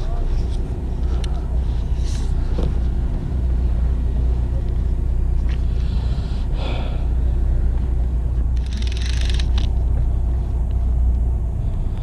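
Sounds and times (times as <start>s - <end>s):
boat engine idling: 0.0s - 12.0s
rattly hiss: 8.6s - 9.8s.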